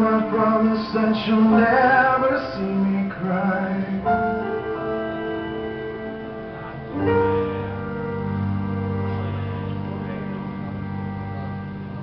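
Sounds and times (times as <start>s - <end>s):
man singing: 0.0s - 5.0s
piano chords: 0.0s - 12.0s.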